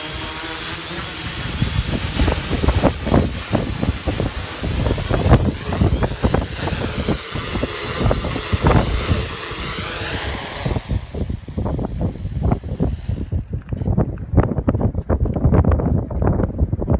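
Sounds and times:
drone propellers whirring: 0:00.0 - 0:13.3
wind buffeting microphone: 0:00.6 - 0:16.9.

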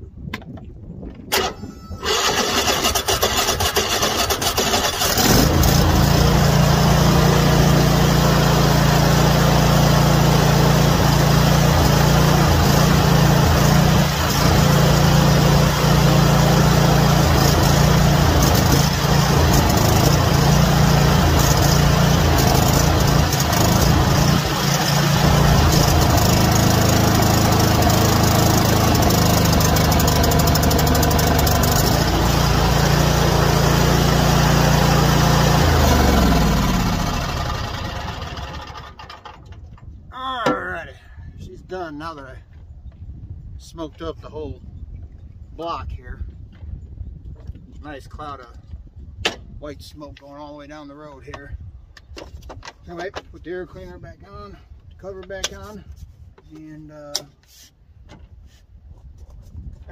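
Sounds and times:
mower engine running: 0:01.3 - 0:39.4
electric starter cranking: 0:01.3 - 0:39.5.

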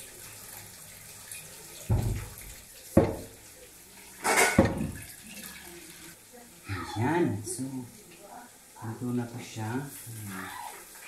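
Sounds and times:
water rushing from tap: 0:00.0 - 0:08.3
kitchenware clatter: 0:01.3 - 0:03.4, 0:04.1 - 0:05.2
dull knock: 0:01.9 - 0:02.4, 0:03.0 - 0:03.3.

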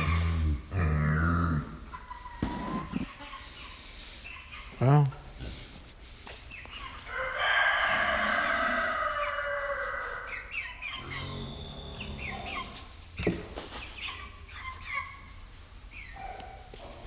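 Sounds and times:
chickens clucking: 0:00.0 - 0:17.0
rooster crowing: 0:07.1 - 0:10.4.

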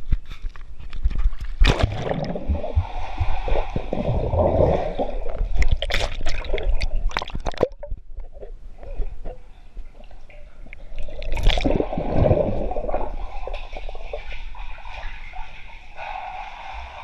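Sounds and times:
pool water sloshing: 0:01.5 - 0:17.0
muffled underwater bubbling: 0:01.6 - 0:16.2
underwater clicks and knocks: 0:05.3 - 0:11.8.

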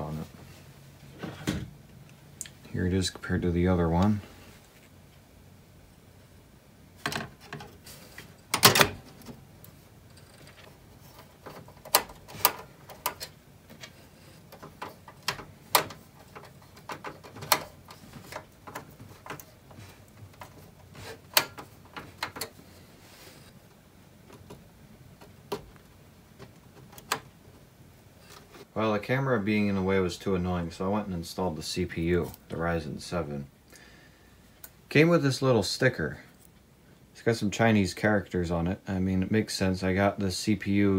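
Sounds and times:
clicks and knocks of hardware: 0:10.1 - 0:20.6.

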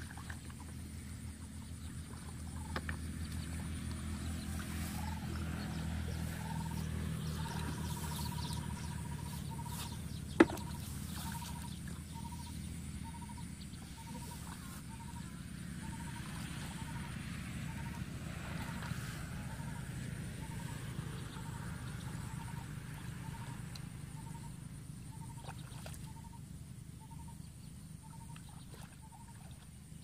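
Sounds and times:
low hum: 0:00.0 - 0:29.8
animal calling: 0:04.7 - 0:17.1.

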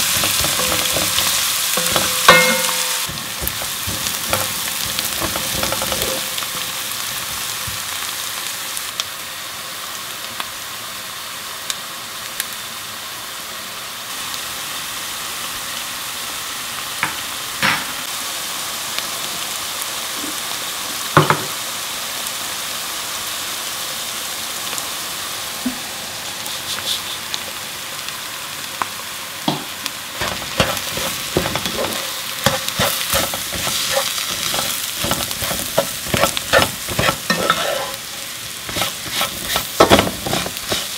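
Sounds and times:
spatula scraping and clicking in pan: 0:00.0 - 0:06.7, 0:30.2 - 0:38.0, 0:38.7 - 0:40.9
onions sizzling in hot oil: 0:00.0 - 0:40.9.

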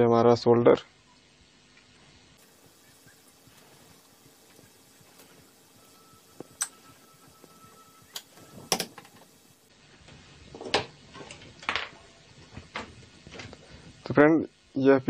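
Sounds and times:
circuit boards knocking and clattering: 0:08.2 - 0:09.3.

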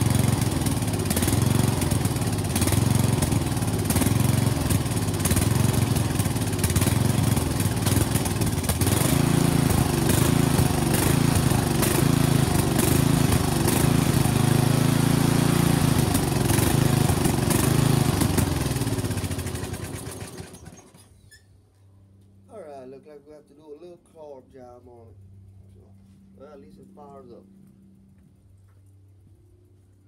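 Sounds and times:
mower engine running: 0:00.0 - 0:21.1.

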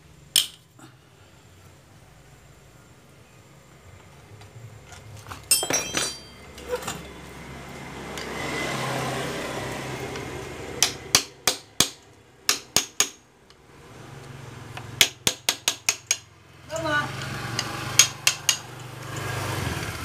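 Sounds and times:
metal hand tools clinking: 0:05.0 - 0:07.2
sharp metallic taps: 0:10.8 - 0:13.2, 0:15.0 - 0:16.9, 0:17.5 - 0:18.8.

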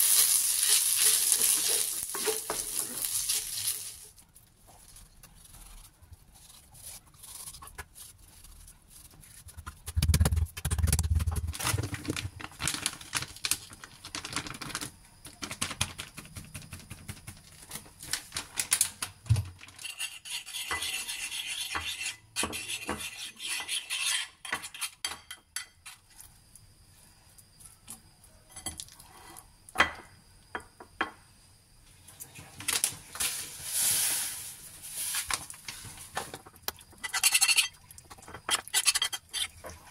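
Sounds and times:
spoon scraping ceramic plate: 0:19.8 - 0:25.0, 0:37.0 - 0:37.8.

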